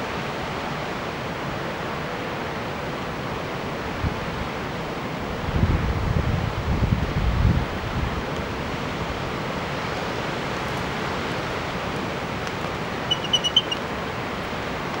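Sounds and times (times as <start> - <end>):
wind: 0.0 - 15.0
bird chirping: 13.0 - 13.8.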